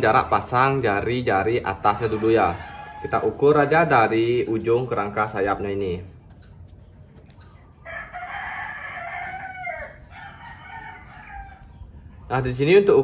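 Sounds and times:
rooster crowing: 1.9s - 3.5s, 7.8s - 11.8s.

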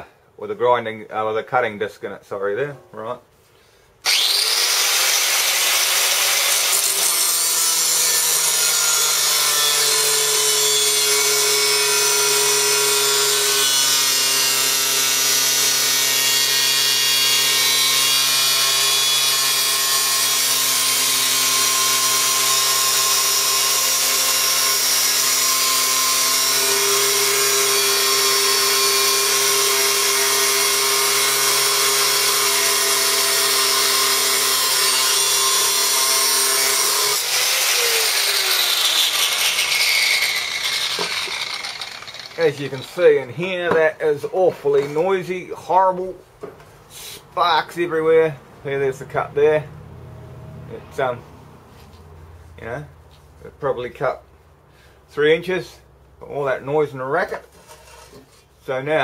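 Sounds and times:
angle grinder cutting steel: 4.0s - 43.5s.

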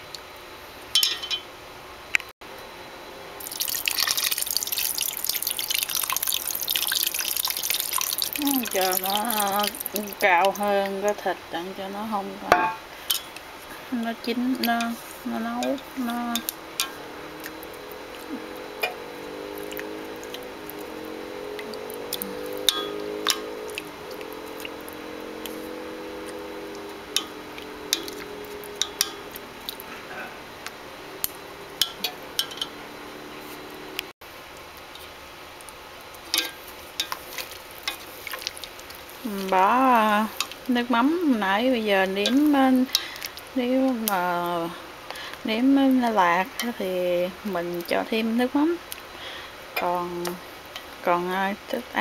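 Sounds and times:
liquid pouring into a pot: 3.4s - 10.3s
chopsticks stirring liquid in pot: 3.5s - 10.8s, 14.7s - 29.9s, 36.3s - 40.7s, 41.8s - 44.2s
steady hum: 8.4s - 34.4s
chopsticks clicking on metal pot: 22.2s - 23.5s, 27.1s - 29.2s.

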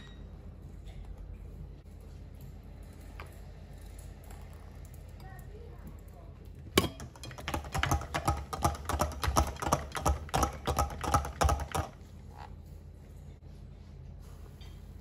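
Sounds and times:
beaters clattering against bowl: 6.7s - 12.1s.

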